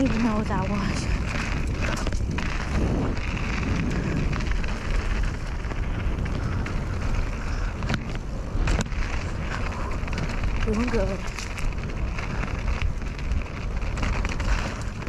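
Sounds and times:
bike tyres rumbling on trail: 0.0s - 15.0s
wind buffeting microphone: 0.0s - 15.0s.

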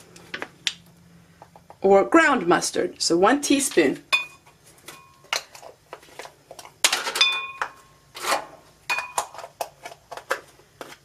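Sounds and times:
kitchen utensils clinking: 4.1s - 5.6s, 6.8s - 9.5s.

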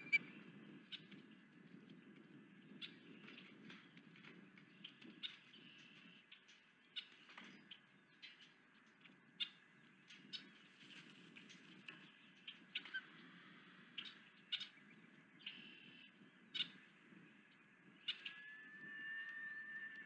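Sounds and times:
high-pitched bird chirps: 0.0s - 0.2s, 18.0s - 20.0s.

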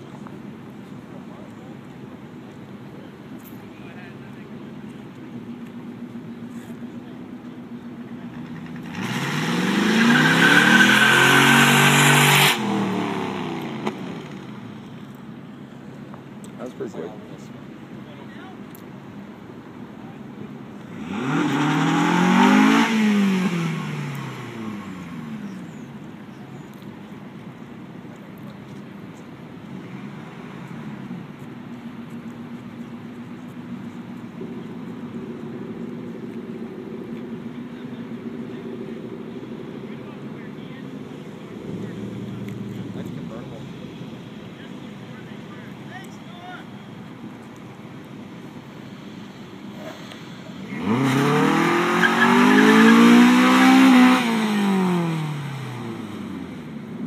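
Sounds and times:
car engine revving: 7.7s - 15.0s, 20.4s - 25.7s, 48.4s - 57.0s.

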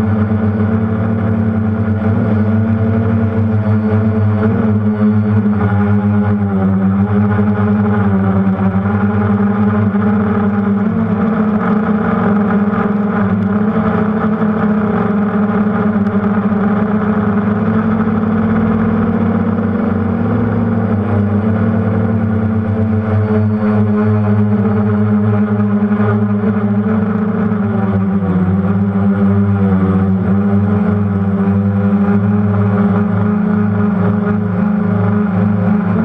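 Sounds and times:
quadcopter motors and propellers: 0.0s - 36.0s.

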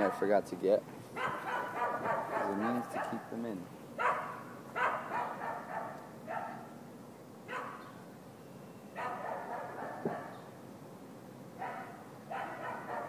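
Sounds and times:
dog barking: 0.0s - 0.3s, 1.2s - 3.4s, 4.0s - 6.8s, 7.5s - 7.8s, 9.0s - 10.4s, 11.6s - 13.0s.

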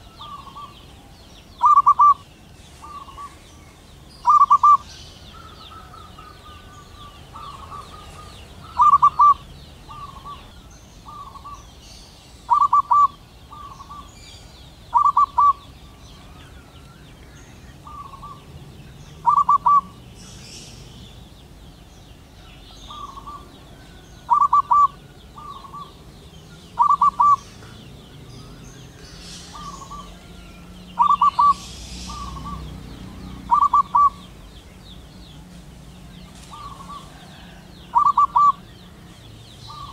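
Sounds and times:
dove cooing: 0.0s - 3.6s, 4.2s - 11.6s, 12.5s - 14.1s, 14.9s - 16.6s, 17.8s - 18.5s, 19.2s - 20.1s, 22.9s - 27.8s, 29.1s - 34.4s, 36.4s - 38.7s.

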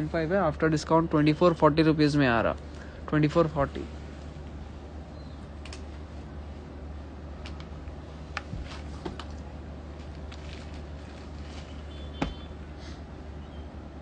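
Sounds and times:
steady low hum: 0.0s - 14.0s
clothes rustling: 5.8s - 12.6s.

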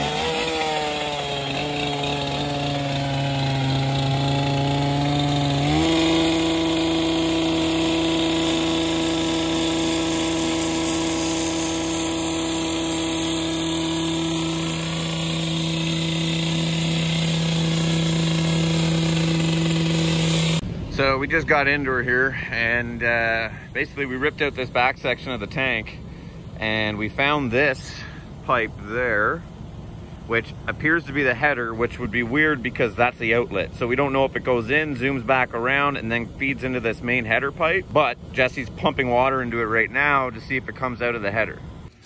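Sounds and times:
cut-off saw cutting concrete: 0.0s - 20.6s, 30.3s - 42.0s.

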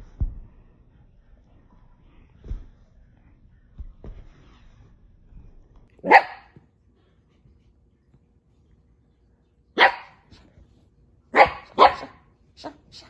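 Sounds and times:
small dog barking: 6.0s - 6.6s, 9.8s - 10.2s, 11.3s - 13.0s.

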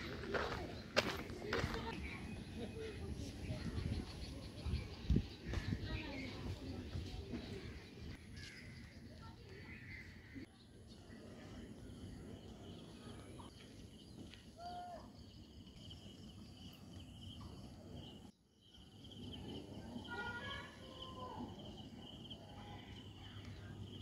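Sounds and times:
insects chirring: 14.8s - 24.0s.

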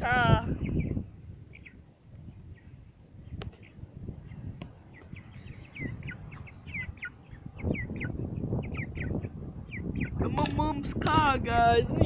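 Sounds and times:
wind noise on microphone: 0.0s - 12.0s
chicks peeping: 0.4s - 11.2s.

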